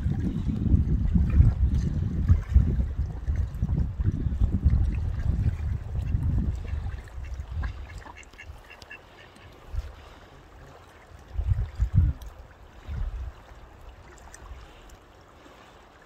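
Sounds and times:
ducks quacking: 6.0 - 10.2.

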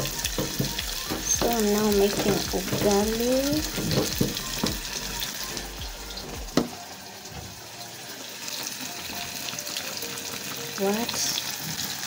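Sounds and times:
spoon stirring wet dough in pot: 0.0 - 5.0.

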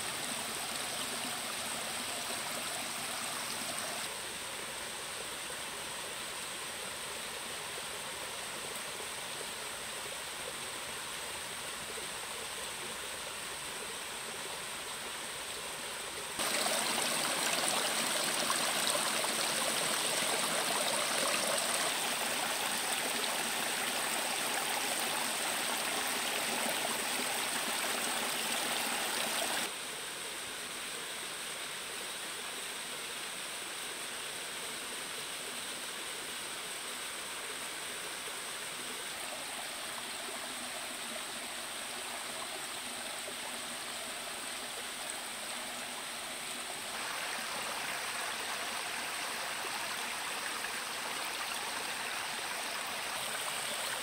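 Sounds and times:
water rushing over rocks: 16.4 - 29.7, 46.8 - 54.0.

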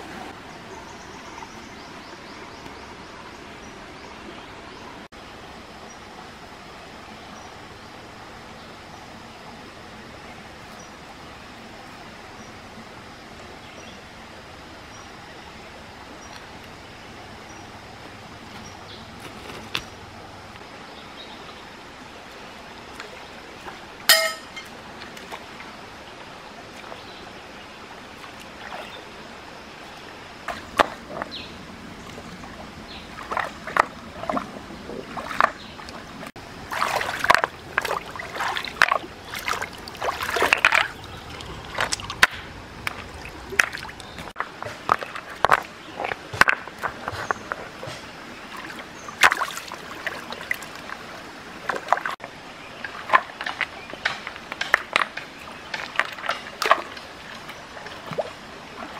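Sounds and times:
stream trickling: 0.0 - 58.9
water splashing: 22.1 - 25.8, 27.9 - 58.9.

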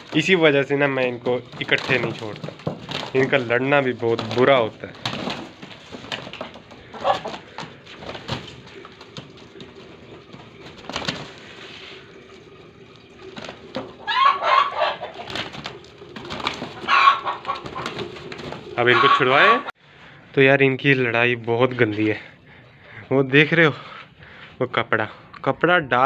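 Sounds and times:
chickens scuffling feet: 0.0 - 19.7
wings flapping: 0.0 - 19.7
chickens squawking: 4.2 - 11.9, 13.3 - 19.7.

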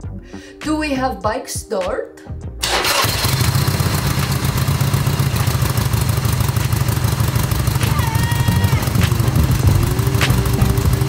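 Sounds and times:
motorcycle engine idling: 3.1 - 11.0.

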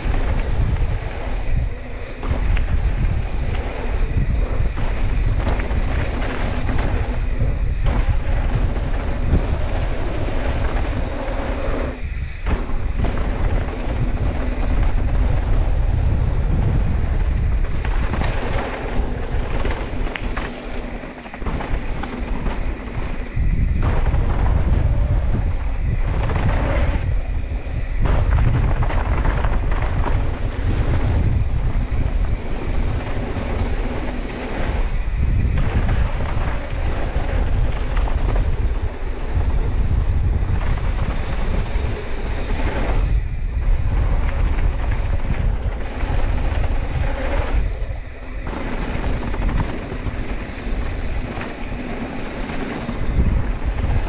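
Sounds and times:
bike tyres rolling over dirt: 0.0 - 54.0
wind buffeting microphone: 0.0 - 54.0.

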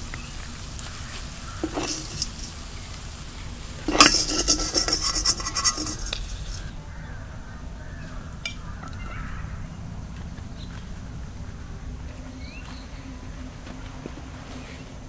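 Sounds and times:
steady hiss: 0.0 - 15.0
metal utensil scraping a pan: 1.4 - 3.0, 3.8 - 6.7.

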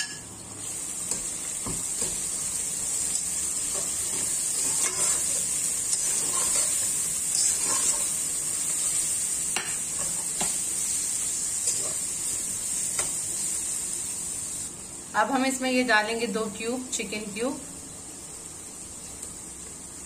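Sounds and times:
vegetables sizzling in oil: 0.0 - 20.0
metal spatula scraping pot: 4.6 - 8.1.

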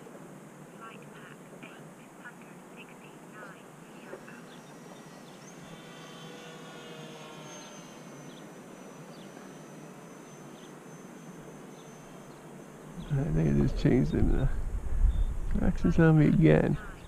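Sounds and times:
outdoor hiss: 0.0 - 17.0
faint chirps: 0.7 - 17.0
model plane motor drone: 3.8 - 14.1.

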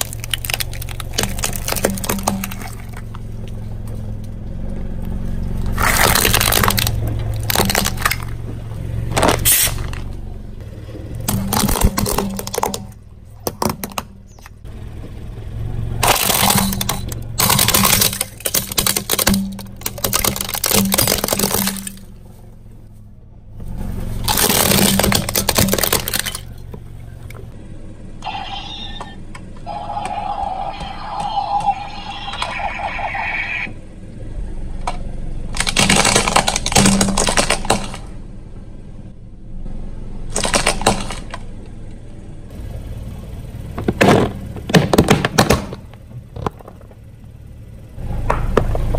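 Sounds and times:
bamboo basket cracking and crunching: 0.0 - 4.4, 5.5 - 10.2, 11.1 - 13.0, 16.0 - 22.5, 24.2 - 27.5, 34.9 - 38.1, 40.3 - 41.4
low car hum: 0.0 - 48.9.

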